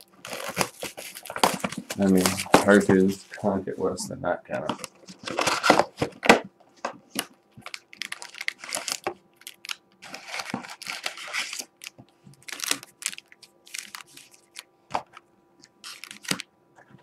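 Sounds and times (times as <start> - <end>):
shrink wrap crinkling and tearing: 0.0 - 3.2, 7.1 - 14.7, 15.7 - 16.4
card packs rustling and clicking: 0.0 - 3.5, 4.5 - 15.2, 15.8 - 17.0.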